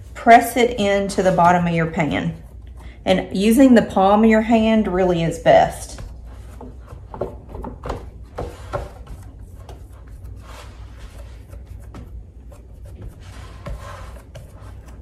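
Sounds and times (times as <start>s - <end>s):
hands rubbing dough in metal pan: 0.0s - 15.0s.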